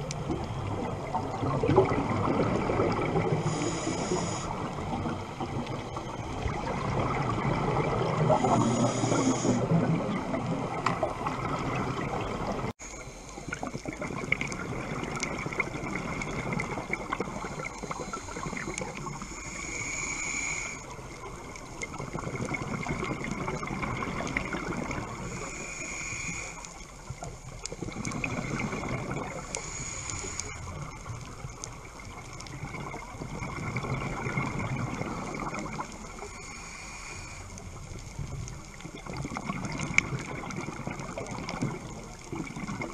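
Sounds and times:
bubbles gurgling underwater: 0:00.0 - 0:12.7, 0:13.4 - 0:19.3, 0:20.9 - 0:25.5, 0:27.0 - 0:29.7, 0:30.6 - 0:36.3, 0:37.8 - 0:42.9
diver regulator breathing: 0:03.3 - 0:04.8, 0:08.2 - 0:09.9, 0:17.2 - 0:21.0, 0:25.0 - 0:26.9, 0:27.8 - 0:31.0, 0:35.1 - 0:37.9.

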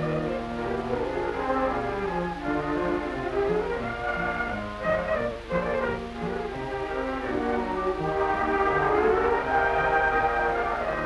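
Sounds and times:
orchestral background music: 0:00.0 - 0:11.0.

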